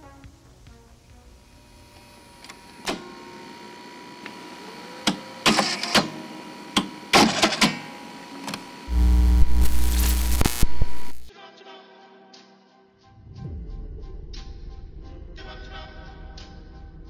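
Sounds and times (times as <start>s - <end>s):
mechanical clicks and clunks: 5.0s - 8.7s.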